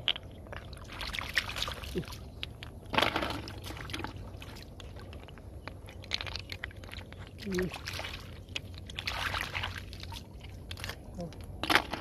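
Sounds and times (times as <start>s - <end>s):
hands splashing in muddy water: 0.8s - 2.3s, 7.3s - 11.0s.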